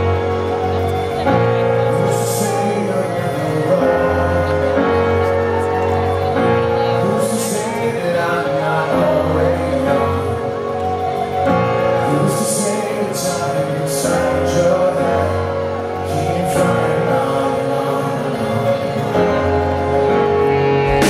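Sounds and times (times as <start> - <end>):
electric guitar: 0.0 - 21.0
man singing: 0.0 - 21.0
drums: 19.0 - 21.0.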